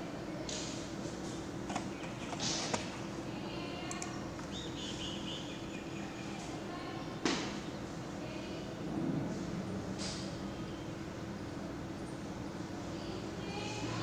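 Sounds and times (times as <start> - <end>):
steady low hum: 0.0 - 14.0
faint clicks and knocks: 1.7 - 2.9
high chirps: 4.4 - 6.4.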